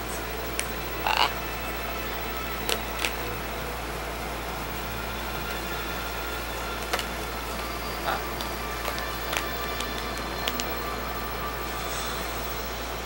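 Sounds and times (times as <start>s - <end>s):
steady background hum: 0.0s - 13.0s
plastic bottle clicks and crackles: 2.6s - 3.2s, 6.8s - 7.7s, 8.4s - 10.8s.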